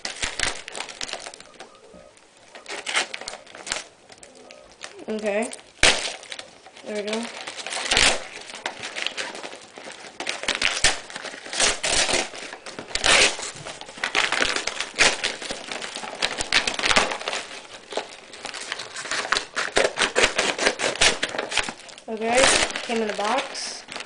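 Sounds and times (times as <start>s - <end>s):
paper and tape crinkling and tearing: 0.0s - 24.0s.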